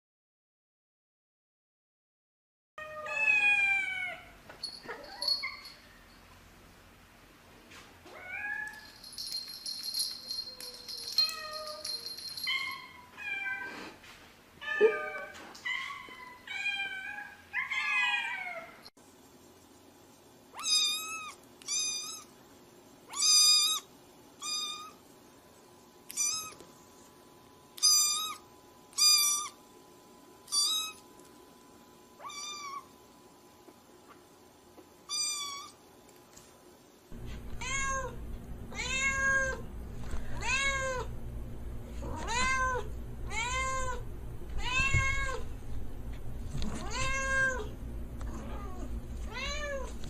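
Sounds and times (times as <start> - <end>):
cats meowing: 2.8 - 5.7, 14.6 - 18.8, 37.6 - 39.6, 40.3 - 41.1, 42.0 - 44.0, 44.6 - 45.5, 46.7 - 47.7.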